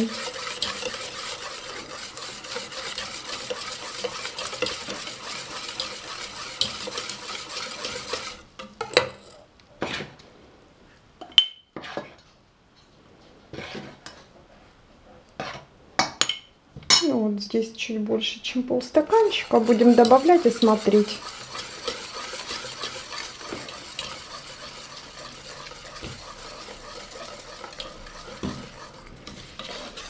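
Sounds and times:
whisk beating batter in metal pot: 0.0s - 10.0s, 18.8s - 30.0s.

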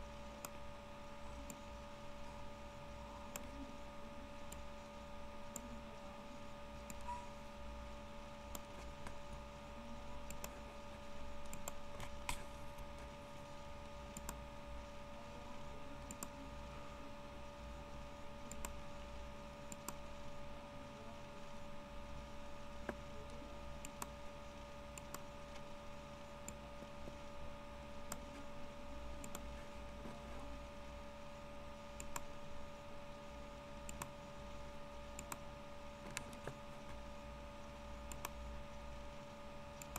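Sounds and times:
steady electrical hum: 0.0s - 39.9s
computer mouse clicks: 0.4s - 0.6s, 1.4s - 1.7s, 3.2s - 3.6s, 4.4s - 4.7s, 5.4s - 5.8s, 6.8s - 7.3s, 8.4s - 9.6s, 10.2s - 13.2s, 14.1s - 14.4s, 16.0s - 16.4s, 18.4s - 18.8s, 19.7s - 20.1s, 22.7s - 24.2s, 24.9s - 25.8s, 28.0s - 30.4s, 31.9s - 32.4s, 33.8s - 38.8s
keyboard clicks: 10.2s - 10.6s, 11.4s - 13.2s, 14.1s - 14.4s, 18.5s - 18.8s, 25.0s - 25.7s, 29.2s - 30.2s, 32.0s - 32.3s, 33.8s - 34.1s, 35.2s - 37.0s, 38.1s - 38.4s.

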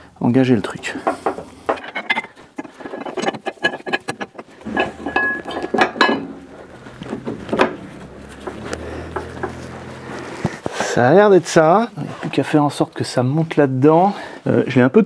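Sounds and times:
metal parts clinking and knocking: 1.0s - 9.6s
low steady hum: 1.4s - 10.7s.

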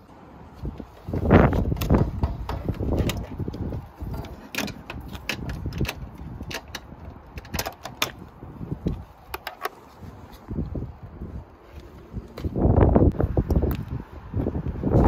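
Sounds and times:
plastic parts clicking and rattling: 1.5s - 9.8s.

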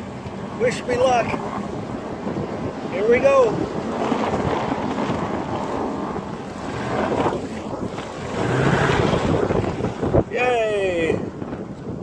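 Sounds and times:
wind buffeting microphone: 0.0s - 12.0s
truck engine under load: 6.7s - 9.9s.

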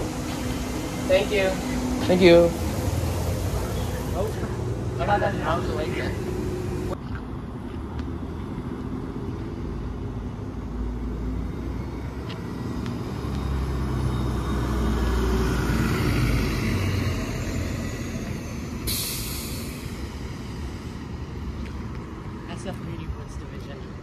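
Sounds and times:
air brakes hissing: 0.0s - 4.6s, 18.0s - 20.2s
bus engine running: 0.0s - 24.0s.

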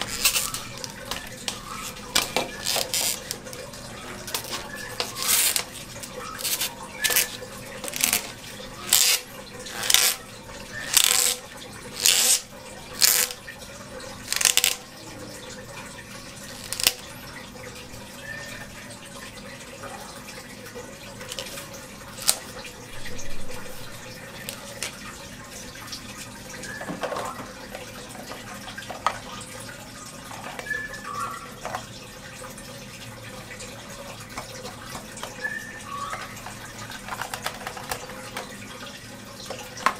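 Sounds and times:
clicks and knocks from pump parts: 0.0s - 10.2s, 10.8s - 11.4s, 12.0s - 13.4s, 14.3s - 14.8s, 22.2s - 22.5s, 26.6s - 29.3s, 31.6s - 31.9s, 34.3s - 38.6s, 39.4s - 39.9s
water trickling in an aquarium: 0.0s - 39.9s.

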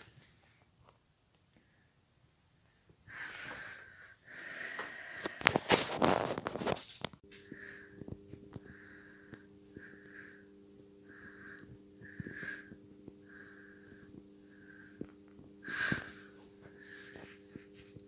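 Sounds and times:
cat wheezing breaths: 15.6s - 17.3s.

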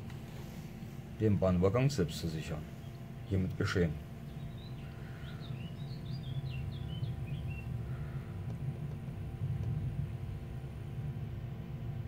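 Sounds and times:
bird chirping: 4.2s - 8.3s.

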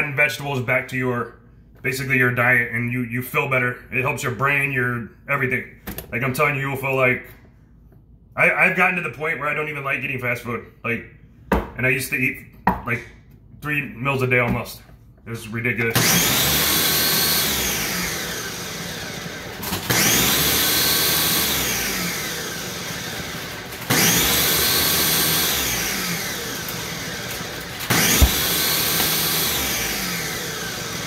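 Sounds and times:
blender motor pulsing: 16.0s - 31.0s.

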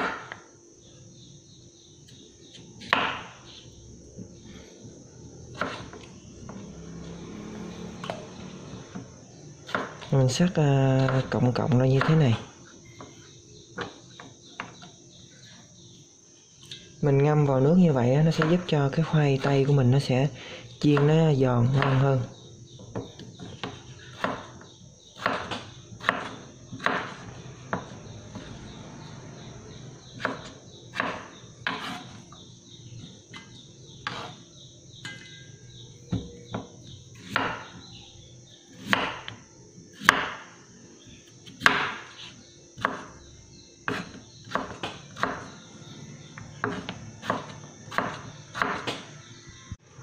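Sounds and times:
knife chopping on wooden board: 2.6s - 3.4s, 5.5s - 6.6s, 9.6s - 10.1s, 21.7s - 22.0s, 22.9s - 24.6s, 25.2s - 27.9s, 30.2s - 32.2s, 33.3s - 34.4s, 36.1s - 37.8s, 38.8s - 39.4s, 40.0s - 40.5s, 41.4s - 43.1s, 43.8s - 45.6s, 46.6s - 49.1s.

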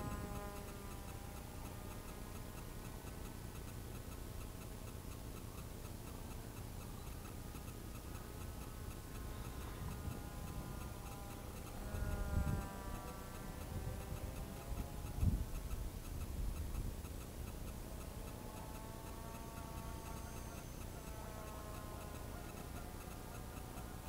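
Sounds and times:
model aircraft whine: 0.0s - 3.4s, 6.2s - 24.0s
wind rumble on microphone: 9.6s - 11.0s, 11.7s - 17.1s.

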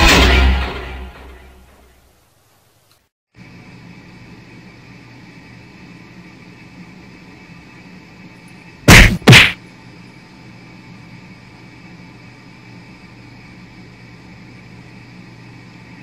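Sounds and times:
faint steady hum: 1.0s - 16.0s
loud thumps of cat swatting: 8.9s - 9.6s.

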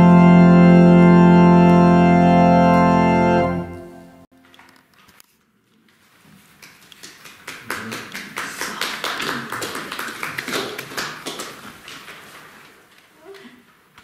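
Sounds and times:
audience applause: 6.7s - 12.1s.

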